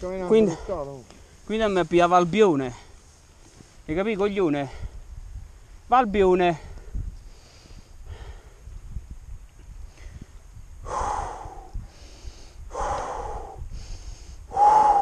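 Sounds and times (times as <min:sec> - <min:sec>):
wind rumble on microphone: 0:04.7 - 0:15.0
person breathing hard: 0:06.6 - 0:08.8, 0:09.8 - 0:15.0.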